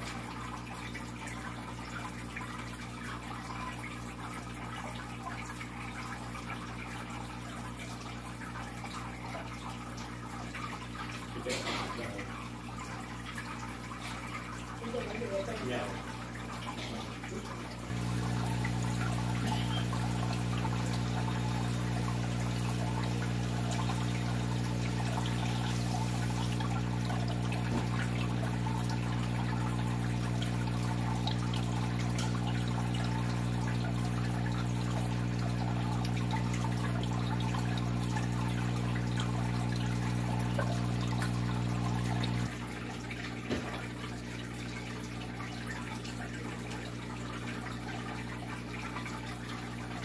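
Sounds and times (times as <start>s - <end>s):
aquarium water trickling: 0.0s - 50.0s
electric hum: 17.9s - 42.5s.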